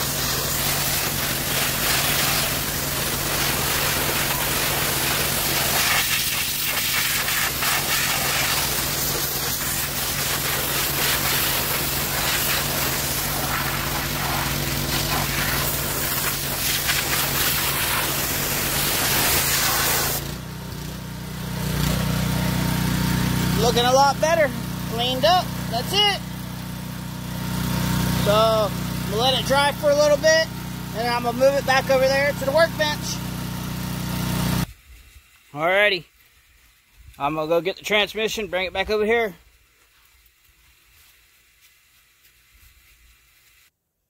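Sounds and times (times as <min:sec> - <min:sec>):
spray jet hissing on metal: 0:00.0 - 0:20.3
pressure washer engine running: 0:00.0 - 0:34.7.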